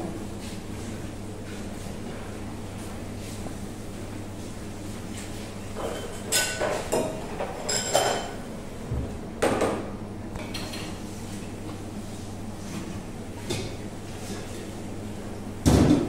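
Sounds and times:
kitchenware clattering: 5.8s - 8.4s.

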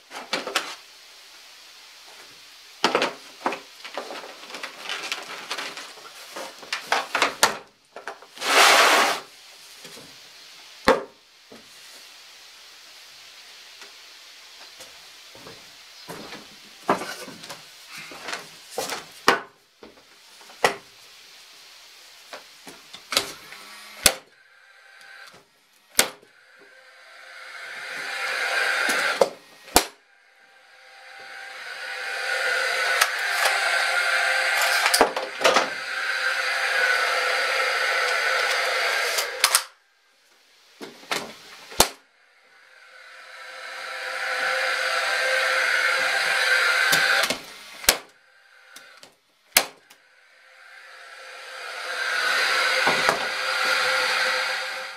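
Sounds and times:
nailer fan whirring: 23.1s - 39.7s, 41.7s - 54.9s
nail gun firing: 24.0s - 24.3s, 26.0s - 26.2s, 28.4s - 30.0s, 38.4s - 39.7s, 41.8s - 42.0s, 46.6s - 48.1s, 49.5s - 49.8s.

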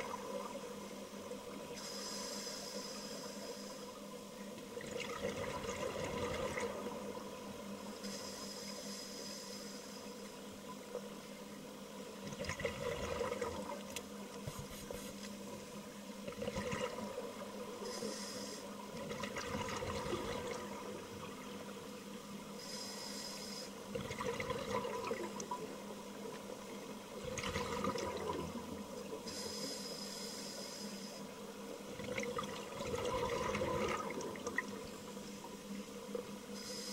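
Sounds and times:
faint steady hum: 0.0s - 36.9s
regulator hissing inhalations: 1.8s - 3.9s, 8.0s - 10.2s, 17.8s - 18.8s, 22.6s - 23.8s, 29.3s - 31.3s, 36.5s - 36.9s
bubbling exhaled air: 23.9s - 25.3s, 27.2s - 28.6s, 31.9s - 34.8s.

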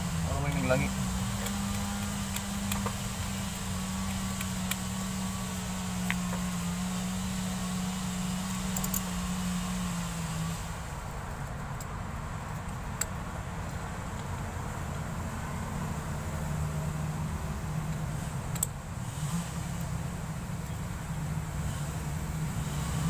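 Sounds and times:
low machine hum: 0.0s - 23.0s
socket tool clicking on bolts: 1.3s - 4.9s, 8.5s - 9.1s, 17.9s - 18.8s.

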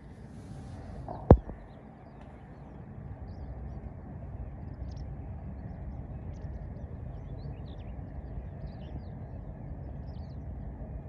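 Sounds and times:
steady low rumble: 0.0s - 11.0s.

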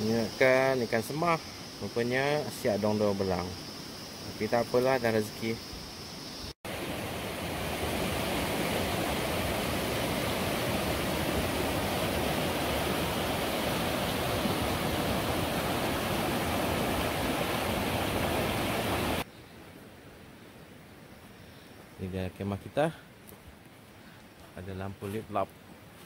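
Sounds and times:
river rushing over boulders: 6.7s - 19.3s.

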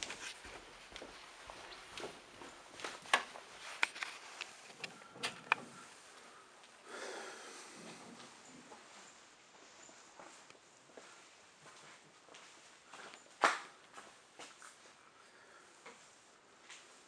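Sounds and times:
footsteps: 0.0s - 6.8s, 7.6s - 15.0s.

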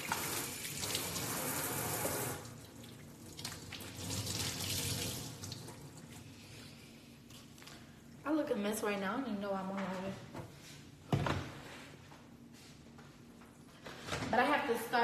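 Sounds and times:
faucet running into sink: 0.0s - 6.1s.

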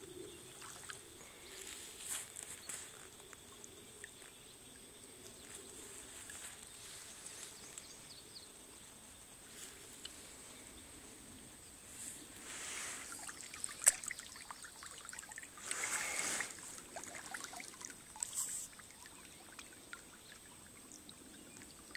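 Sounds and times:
water drips: 13.0s - 21.9s.

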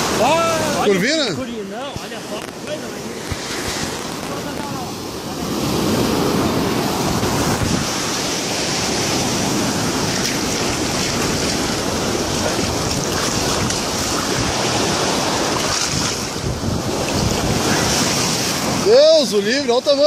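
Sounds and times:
beach surf washing: 0.0s - 20.0s
wind buffeting microphone: 2.0s - 19.2s.

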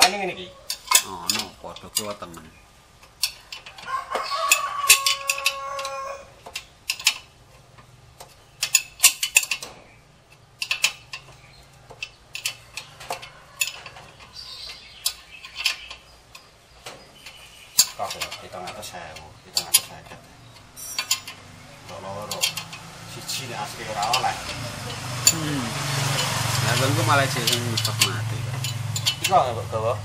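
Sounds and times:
wrench clicking on bolts: 0.7s - 2.3s, 3.0s - 29.6s
steady high tone: 24.6s - 26.5s.

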